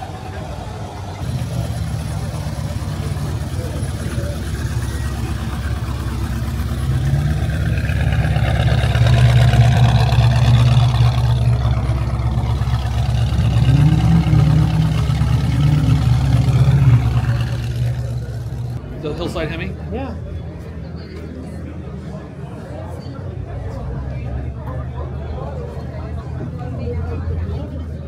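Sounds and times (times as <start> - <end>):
car engine running: 0.0 - 18.9.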